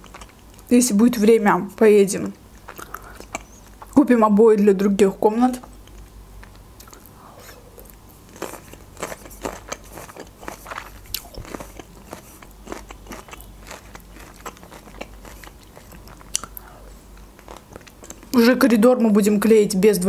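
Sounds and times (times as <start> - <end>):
chewing fruit: 0.0 - 0.7, 2.2 - 4.0, 5.6 - 18.4
mouth clicks: 2.7 - 3.9.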